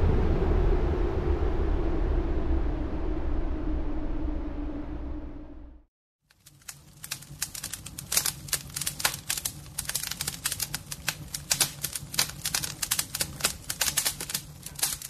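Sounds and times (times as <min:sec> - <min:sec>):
low steady hum: 0:00.0 - 0:15.0
fire crackling and popping: 0:06.2 - 0:15.0.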